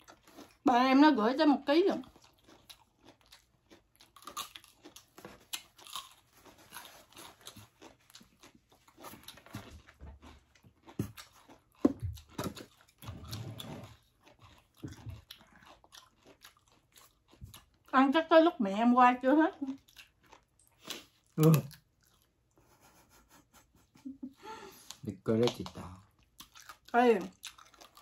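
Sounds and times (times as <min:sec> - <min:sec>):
crunching and chewing food: 0:00.0 - 0:18.5, 0:19.1 - 0:22.9, 0:24.7 - 0:28.0
wet mouth sounds: 0:20.7 - 0:22.2.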